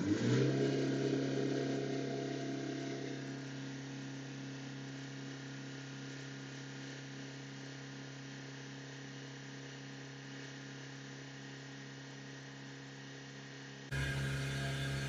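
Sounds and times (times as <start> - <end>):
diesel engine droning at high revs: 0.0 - 7.2, 13.9 - 15.0.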